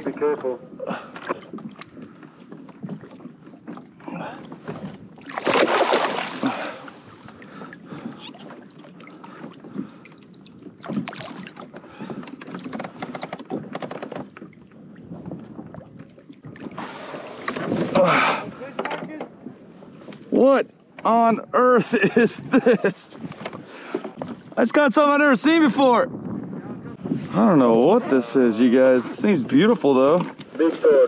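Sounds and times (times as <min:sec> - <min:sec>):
fish splashing in water: 0:05.2 - 0:11.6.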